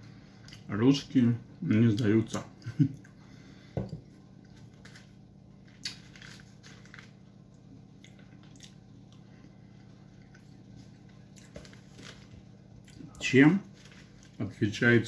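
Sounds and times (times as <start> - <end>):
faint low hum: 0.0 - 15.0
chewing and wet mouth sounds: 4.0 - 14.4.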